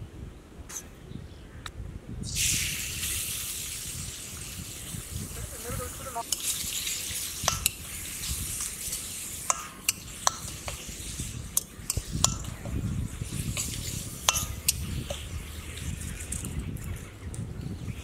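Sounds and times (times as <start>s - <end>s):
food sizzling in hot oil: 2.2s - 16.5s
utensil scraping pan: 11.5s - 16.3s.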